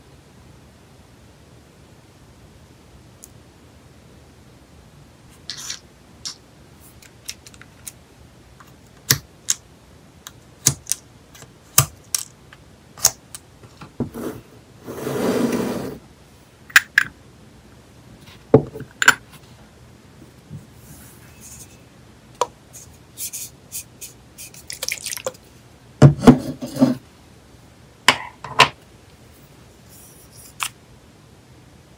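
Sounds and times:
plastic scrape: 0:14.0 - 0:16.0.

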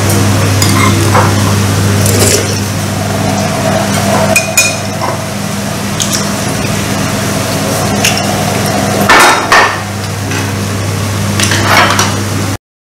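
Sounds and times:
electrical hum: 0:00.0 - 0:12.6.

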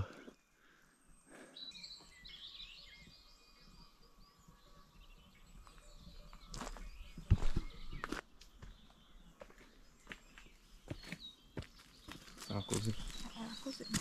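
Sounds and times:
small birds chirping: 0:00.0 - 0:14.0
footsteps on forest floor: 0:05.6 - 0:14.0.

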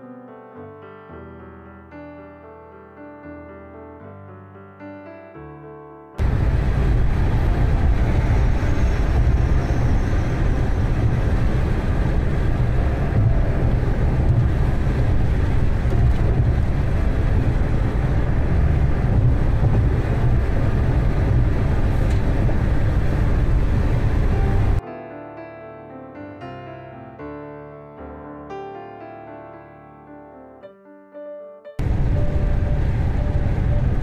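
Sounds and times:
car road and engine rumble: 0:06.2 - 0:24.8, 0:31.8 - 0:34.0.

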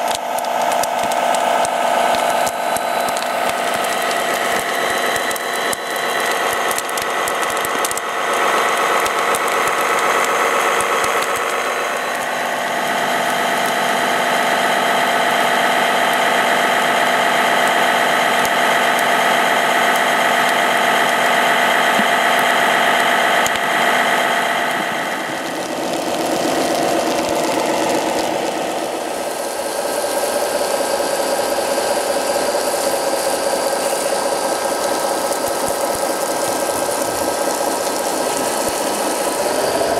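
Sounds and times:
model trucks mechanical hum: 0:00.0 - 0:39.9.

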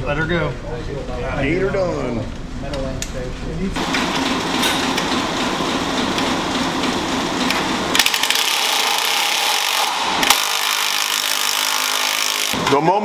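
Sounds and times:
power tool whirring: 0:07.5 - 0:12.8.

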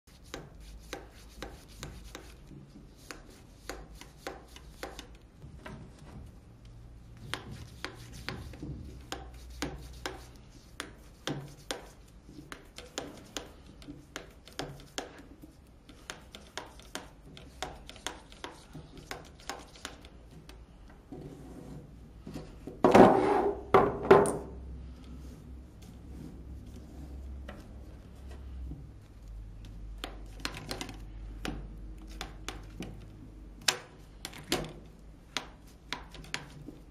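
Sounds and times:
scraping and knocking: 0:21.2 - 0:24.5.

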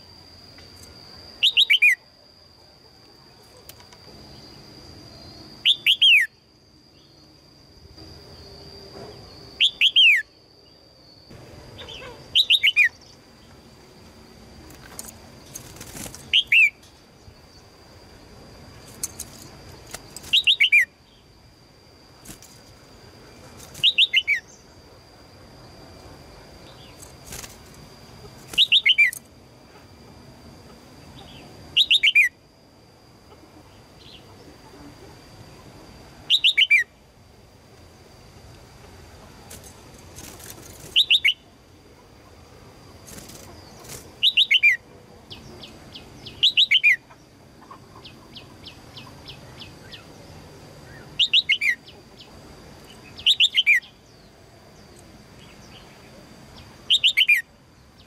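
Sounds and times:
bird chattering calls: 0:11.8 - 0:13.0.

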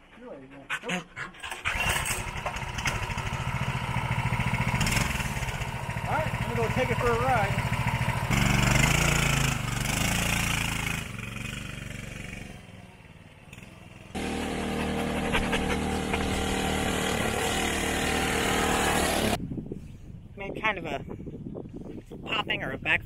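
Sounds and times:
mini bike engine running: 0:01.6 - 0:12.5, 0:14.2 - 0:19.4.

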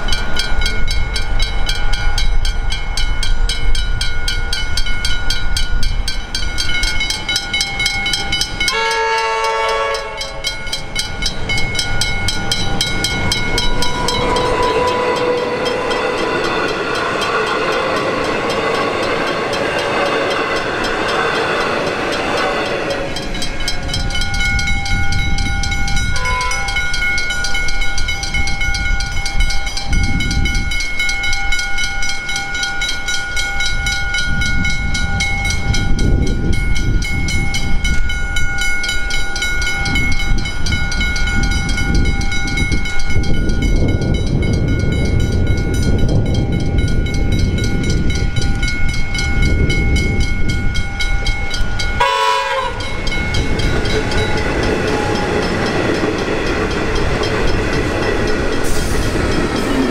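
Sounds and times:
level crossing bells ringing: 0:00.0 - 0:59.9
train rumbling past: 0:00.0 - 0:59.9
train electric motor whine: 0:07.0 - 0:27.2.

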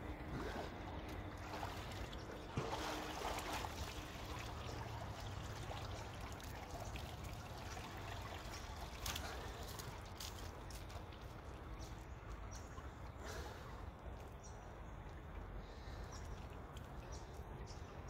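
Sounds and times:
water splashing off swimmer: 0:01.4 - 0:04.6.

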